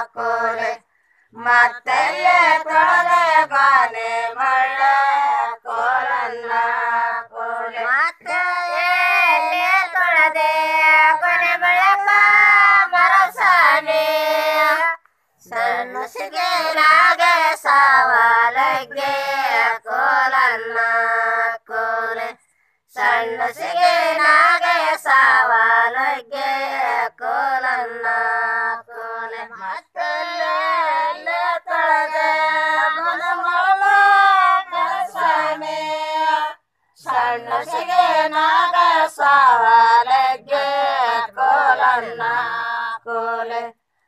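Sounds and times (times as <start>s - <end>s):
women singing folk song: 0.0s - 44.0s.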